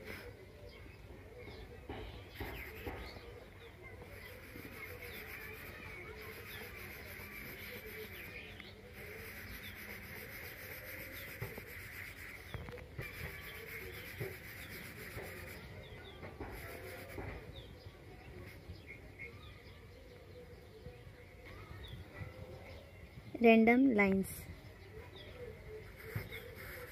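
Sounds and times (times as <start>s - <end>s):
faint bird chirps: 0.0s - 26.9s
pencil scratching on paper: 2.3s - 3.3s, 3.9s - 17.7s, 25.8s - 26.9s.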